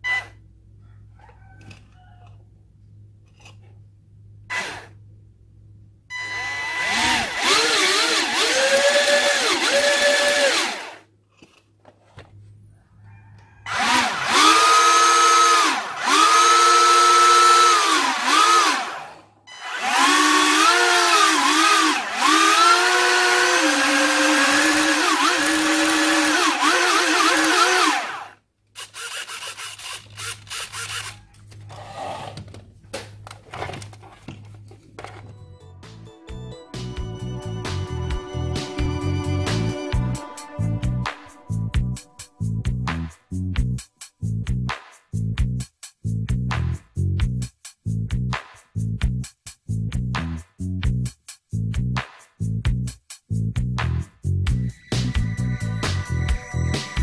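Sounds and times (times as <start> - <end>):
electric motors whining: 6.2 - 11.0, 13.7 - 31.6.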